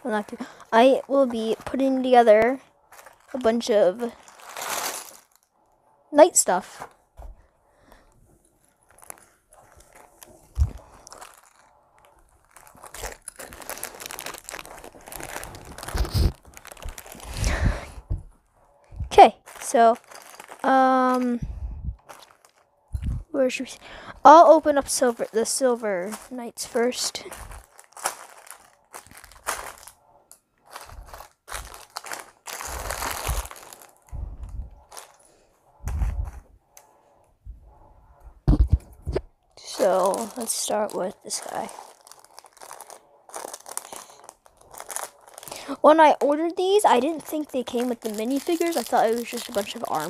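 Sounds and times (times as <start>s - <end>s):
plastic bags crinkling: 0.0s - 5.8s, 7.9s - 21.4s, 22.0s - 37.0s, 38.8s - 50.0s
soft thumps: 18.0s - 18.4s.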